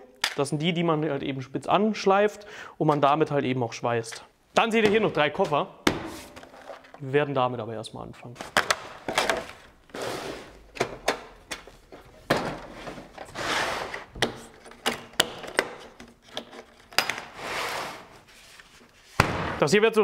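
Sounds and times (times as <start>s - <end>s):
plastic packaging rustling: 6.2s - 7.0s, 8.4s - 10.8s
tool cases scraping: 8.4s - 19.2s.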